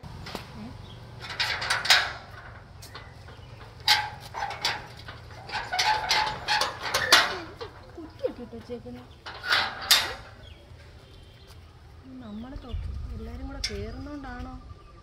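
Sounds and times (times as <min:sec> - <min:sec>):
metal gate latch rattling: 0:00.1 - 0:08.4, 0:09.1 - 0:10.6.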